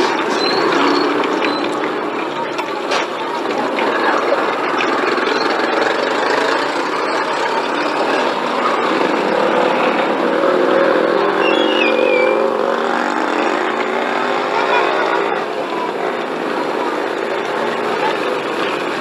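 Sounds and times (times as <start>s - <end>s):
vehicle engine running: 0.0s - 19.0s
short squeak: 0.3s - 1.7s.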